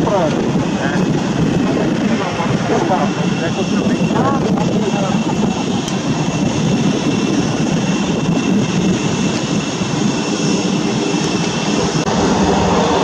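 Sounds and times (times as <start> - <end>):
jet engine high whine: 0.0 - 13.0
jet engines rumbling: 0.0 - 13.0.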